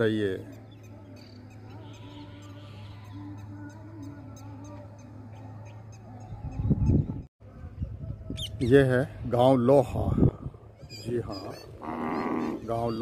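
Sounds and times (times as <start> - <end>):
birds calling: 0.0 - 7.2, 10.6 - 13.0.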